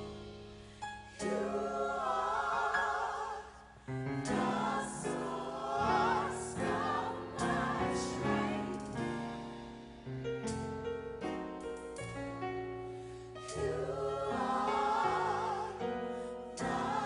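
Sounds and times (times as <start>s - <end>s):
gospel choir singing: 1.2s - 9.7s, 13.4s - 17.0s.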